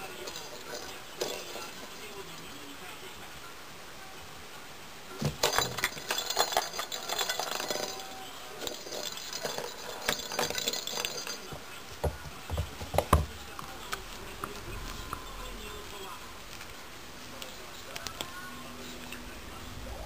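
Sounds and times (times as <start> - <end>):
bell ball jingling: 0.0 - 2.1, 5.4 - 11.6.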